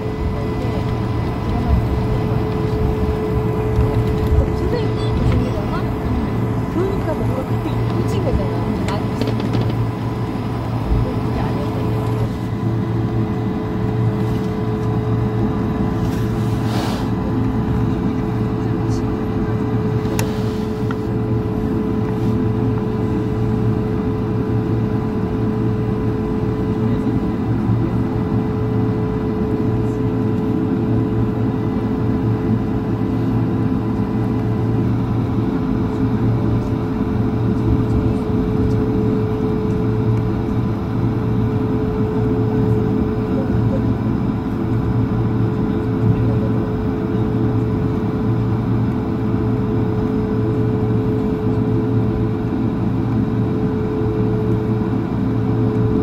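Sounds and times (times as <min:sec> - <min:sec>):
constant engine whine: 0:00.0 - 0:56.0
jet engine cabin hum: 0:00.0 - 0:56.0.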